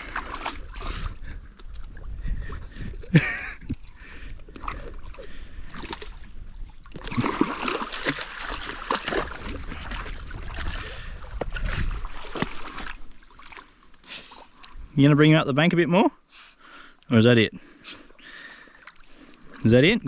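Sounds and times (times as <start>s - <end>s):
dog splashing through water: 7.0s - 11.1s.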